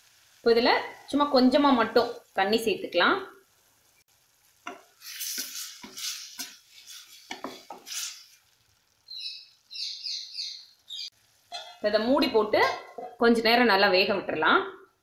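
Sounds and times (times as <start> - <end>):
food sizzling: 0.0 - 14.5
spatula scraping metal pan: 4.7 - 8.4.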